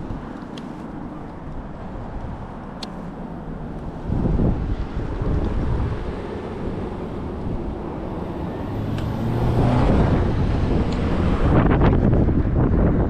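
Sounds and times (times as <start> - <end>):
low road rumble: 0.0 - 13.0
wind on microphone: 3.8 - 13.0.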